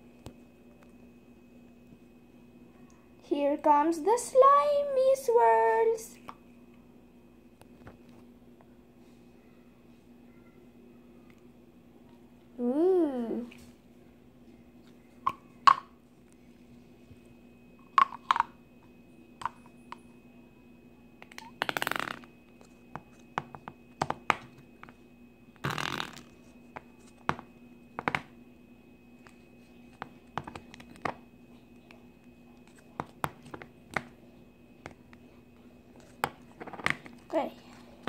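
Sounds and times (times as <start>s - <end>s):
fart-like slime squelches: 25.6s - 26.4s.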